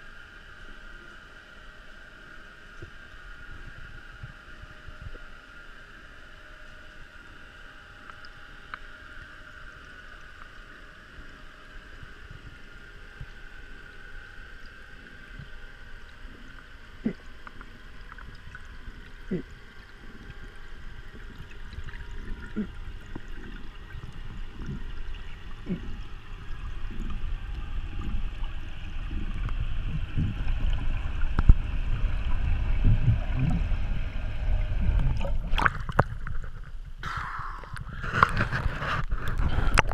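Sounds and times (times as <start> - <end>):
faint steady whine: 0.0 - 39.9
water rushing past: 29.5 - 38.4.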